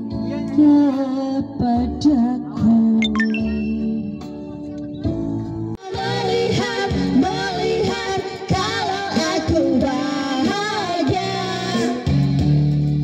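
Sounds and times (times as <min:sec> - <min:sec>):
women singing into microphones: 0:00.0 - 0:03.0, 0:05.8 - 0:12.2
backing music: 0:03.0 - 0:05.8.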